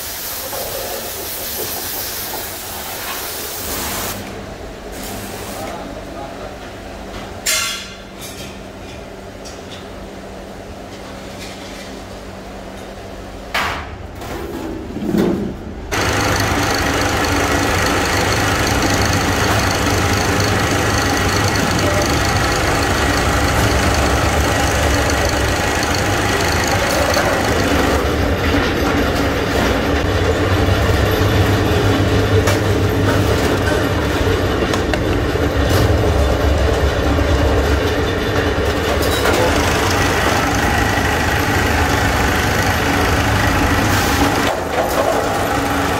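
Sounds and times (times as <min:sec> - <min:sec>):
sheet-metal press running: 0:15.9 - 0:45.9.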